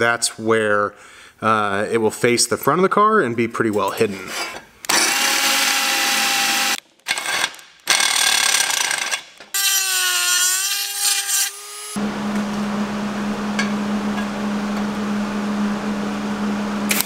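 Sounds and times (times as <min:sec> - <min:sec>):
rotary tool whining grinding: 0:04.4 - 0:12.0
power drill boring metal: 0:04.9 - 0:12.0.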